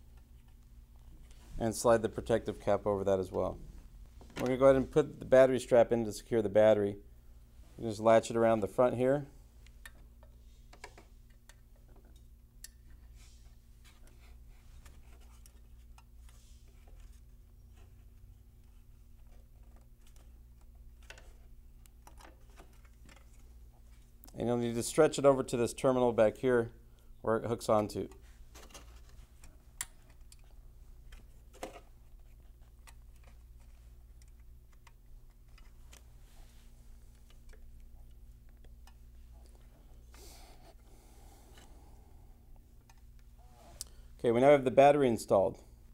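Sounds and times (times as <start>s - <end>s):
low steady hum: 0.0s - 45.9s
strap handling clicks and rustles: 13.8s - 24.3s, 27.6s - 40.2s.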